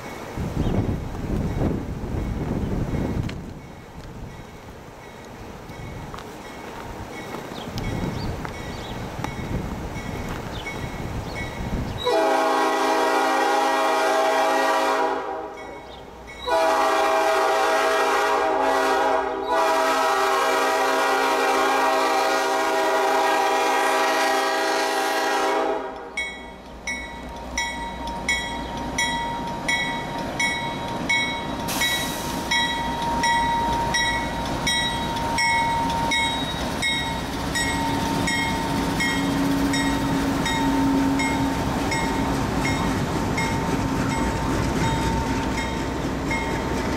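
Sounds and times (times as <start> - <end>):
locomotive air horn blasts: 12.0 - 15.6, 16.4 - 26.2, 38.0 - 41.7.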